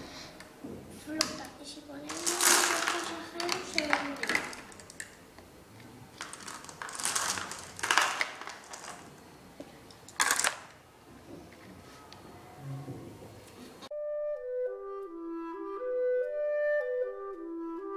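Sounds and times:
marbles clattering in plastic bottle: 2.1s - 5.2s, 6.2s - 9.2s, 10.0s - 10.8s.

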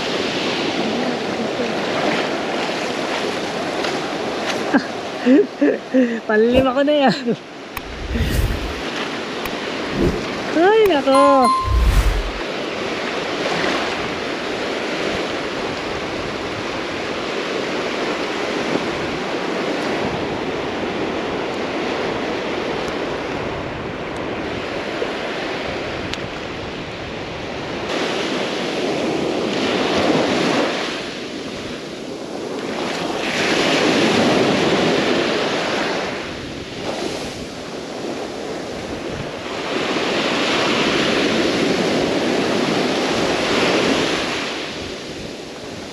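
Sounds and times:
wind buffeting microphone: 7.8s - 8.9s.

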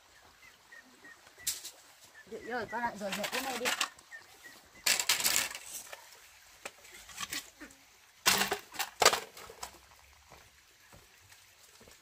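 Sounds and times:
bamboo pieces clattering: 3.0s - 4.1s, 4.8s - 7.6s, 8.2s - 9.8s.

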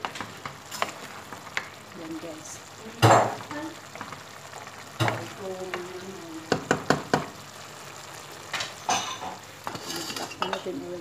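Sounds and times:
rice simmering sizzle: 0.0s - 11.0s
spatula knocking on pot: 6.5s - 7.4s
spatula scraping pot: 9.0s - 10.7s.

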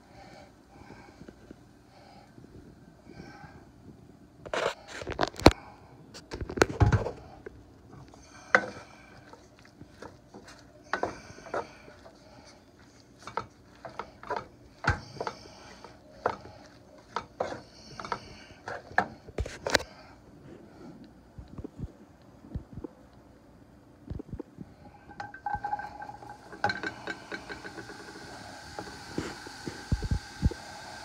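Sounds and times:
spatula scraping frying pan: 13.2s - 18.9s, 25.1s - 29.9s.

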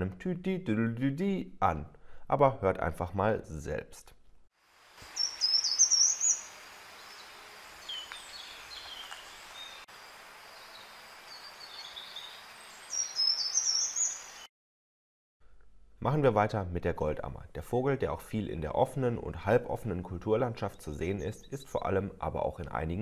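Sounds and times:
steady background hiss: 4.7s - 14.5s
bird singing high strophes: 5.1s - 9.9s, 10.5s - 14.5s
faint bird chirps: 5.1s - 9.9s, 10.5s - 14.5s.

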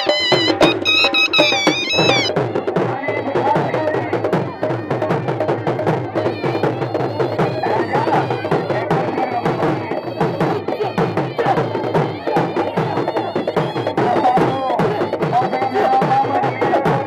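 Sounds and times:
wavering reed pipe melody: 0.0s - 2.3s
drum beating quick rhythm: 0.0s - 17.0s.

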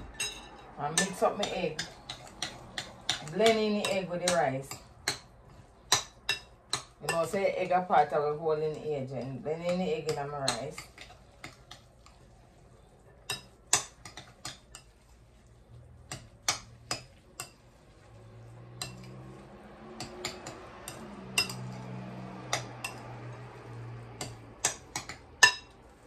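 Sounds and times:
clinks against glass bowl: 20.0s - 21.8s.

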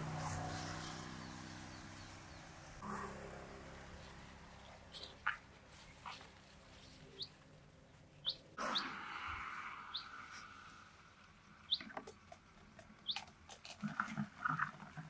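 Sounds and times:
bird chirping: 5.0s - 7.5s, 8.1s - 10.7s, 11.5s - 12.4s, 13.0s - 13.3s
burst of noise: 8.6s - 11.2s.

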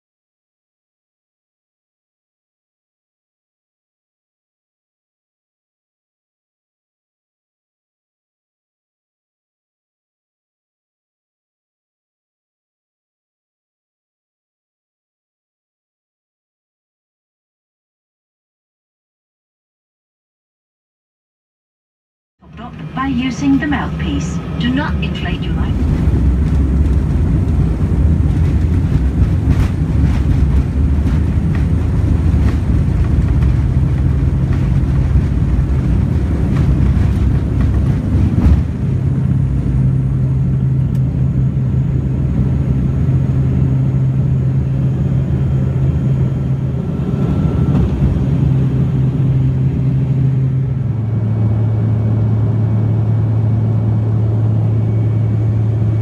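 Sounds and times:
propeller engine droning: 22.4s - 56.0s.

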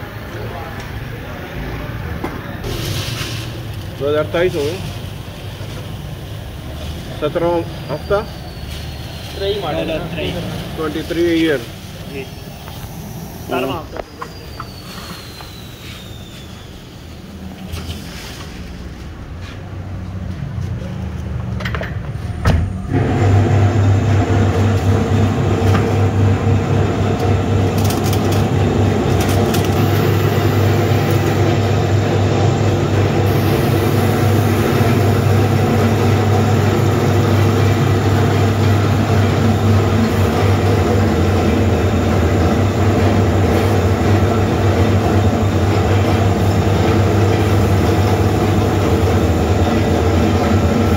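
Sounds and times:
machine motor humming: 22.6s - 50.9s.

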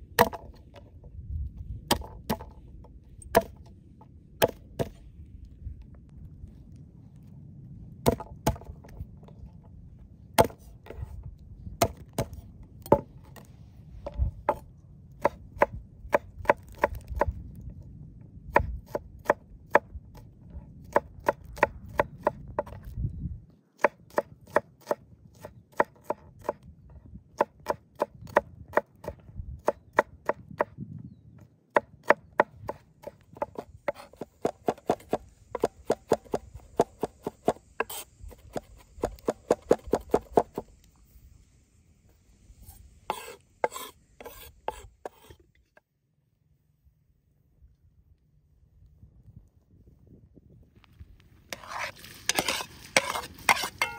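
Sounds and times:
knife chopping on wooden board: 3.3s - 3.5s, 10.4s - 10.7s, 31.8s - 40.6s.

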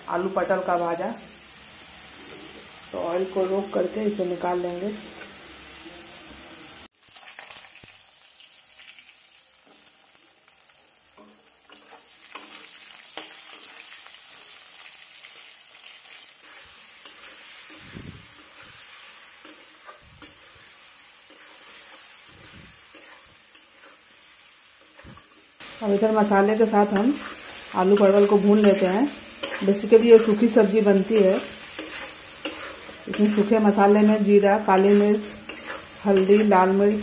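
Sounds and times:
vegetables sizzling in hot oil: 0.0s - 37.0s
metal spatula scraping pan: 11.2s - 14.6s, 15.2s - 25.6s, 26.8s - 37.0s.

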